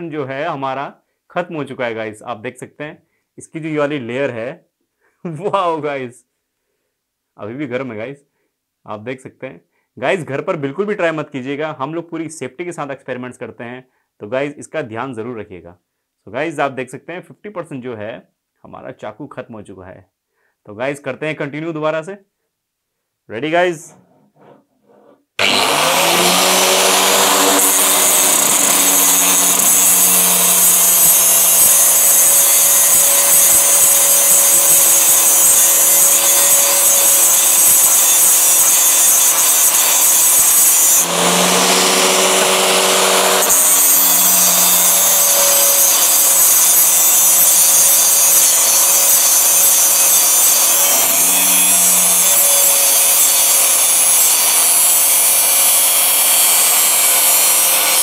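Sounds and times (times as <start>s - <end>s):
angle grinder grinding steel blade: 24.3s - 58.0s.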